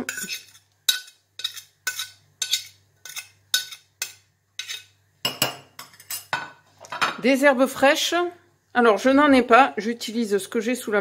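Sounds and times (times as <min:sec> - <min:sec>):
utensil scraping glass bowl: 0:00.0 - 0:04.9.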